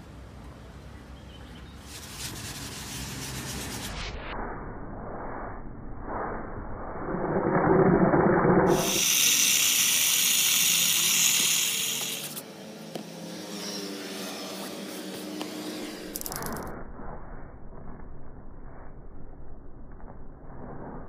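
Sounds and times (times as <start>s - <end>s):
soft rubbing: 1.8s - 4.0s
toothbrush scrubbing fabric: 1.9s - 4.0s
spray bottle hissing: 8.7s - 12.4s.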